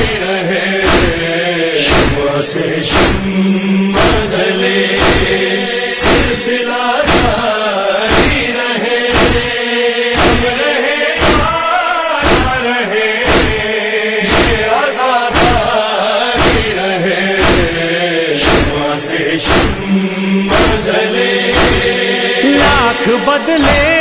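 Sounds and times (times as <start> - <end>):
sung verses: 0.0 - 24.0
voices chanting: 0.0 - 24.0
steady thumping beat: 0.8 - 6.5, 7.1 - 7.5, 8.1 - 8.5, 9.1 - 9.6, 10.2 - 10.6, 11.2 - 11.6, 12.2 - 12.6, 13.3 - 13.7, 14.3 - 14.7, 15.3 - 15.7, 16.4 - 16.8, 17.4 - 17.8, 18.4 - 18.8, 19.4 - 24.0.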